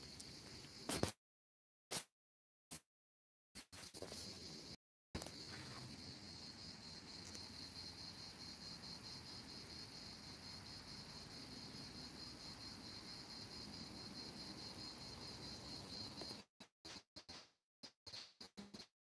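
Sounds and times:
insects chirring: 0.0s - 1.0s, 4.0s - 16.4s.

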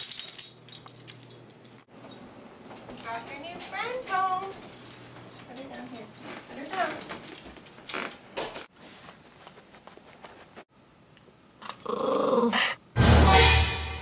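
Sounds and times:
dog growling: 11.6s - 12.8s.

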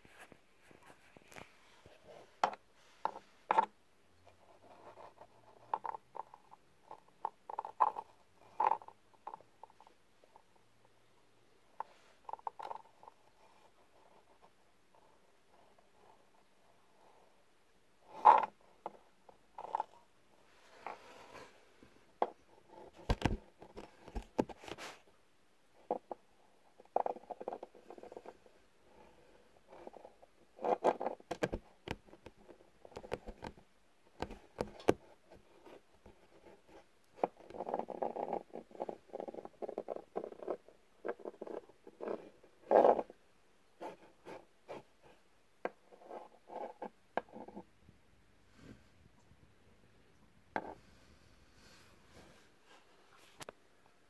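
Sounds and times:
scuffling and scratching at microphone: 0.0s - 10.0s, 19.6s - 25.2s, 51.6s - 53.6s.

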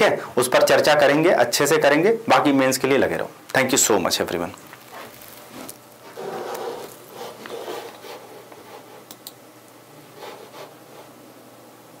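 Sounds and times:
sharp clicks: 9.1s - 9.4s.

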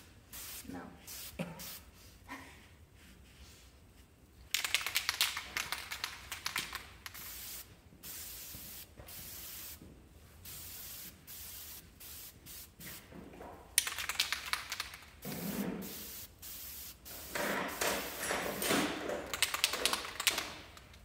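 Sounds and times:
spray can hissing bursts: 0.3s - 1.9s, 4.6s - 9.8s, 10.4s - 13.1s, 13.8s - 20.6s
spray can rattling: 4.5s - 9.8s, 10.4s - 13.1s, 13.7s - 21.0s.

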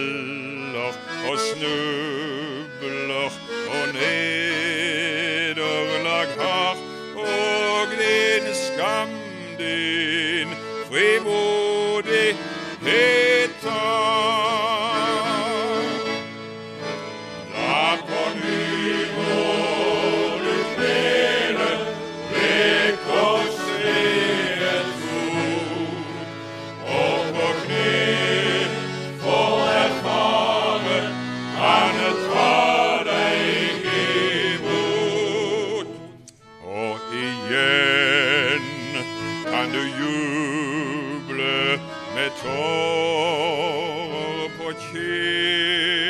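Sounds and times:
men's choir singing a hymn: 3.2s - 14.8s, 17.5s - 36.0s.

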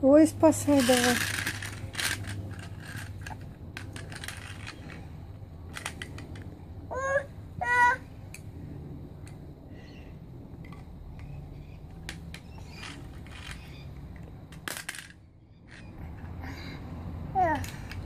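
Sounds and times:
handling clicks and rustling: 0.5s - 6.6s, 10.6s - 16.4s.

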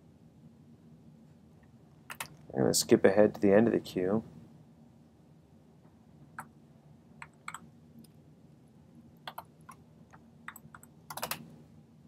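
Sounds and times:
faint low hum: 0.0s - 12.0s
computer keys clicking: 2.1s - 2.4s, 7.2s - 8.2s, 9.2s - 11.5s.

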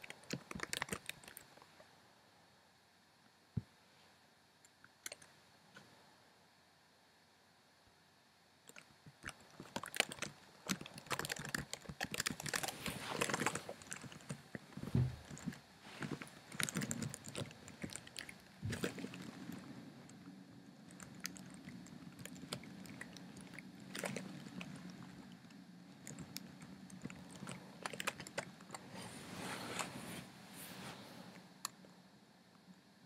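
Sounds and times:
computer keyboard key clicks: 0.0s - 1.4s
low steady hum: 0.0s - 33.0s.

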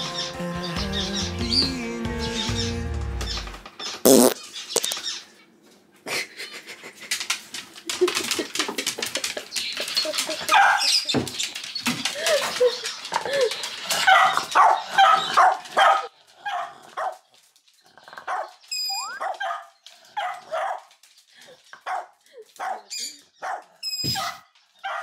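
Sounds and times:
dogs barking: 9.9s - 11.1s, 13.4s - 17.3s, 18.0s - 18.6s, 19.2s - 21.0s, 21.8s - 25.0s.

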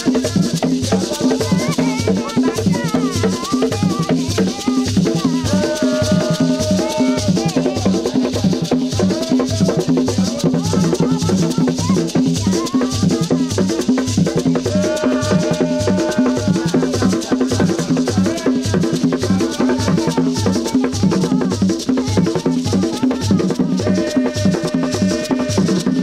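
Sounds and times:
sharp high drum strokes: 0.0s - 26.0s.

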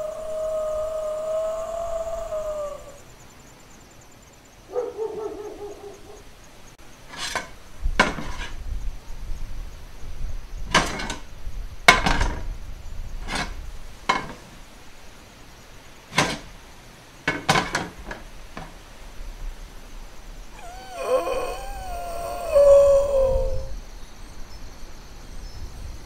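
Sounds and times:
low wind rumble: 0.0s - 3.2s, 7.6s - 14.1s, 18.3s - 26.0s.

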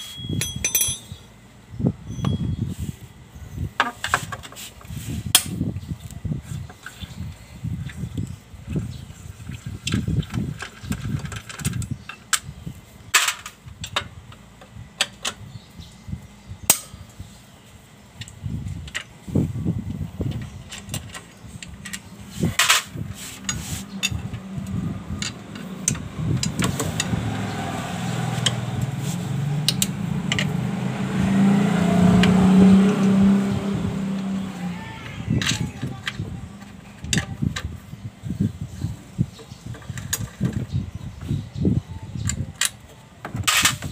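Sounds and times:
metal clicks and clinks: 0.0s - 1.2s
engine droning: 19.6s - 37.6s.

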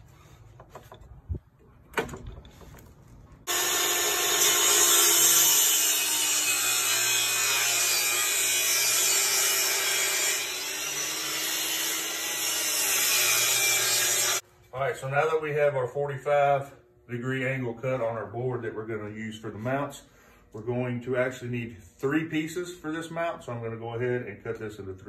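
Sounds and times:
table saw cutting wood: 3.4s - 14.4s.

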